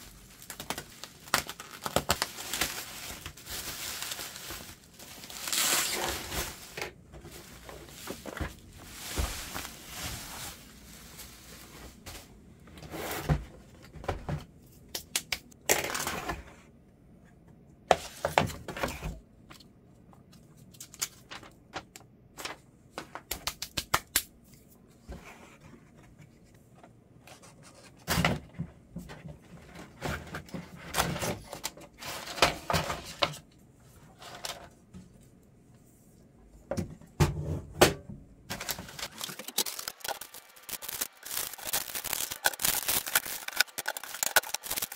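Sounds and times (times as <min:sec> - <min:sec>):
cardboard packaging rustling: 0:00.0 - 0:12.6, 0:38.5 - 0:44.9
box parts clicking and knocking: 0:38.8 - 0:44.9.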